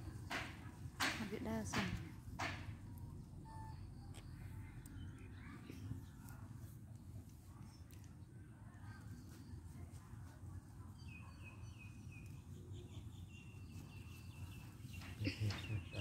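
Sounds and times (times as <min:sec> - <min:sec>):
outdoor background noise: 0:00.0 - 0:16.0
bird chirping: 0:11.0 - 0:16.0.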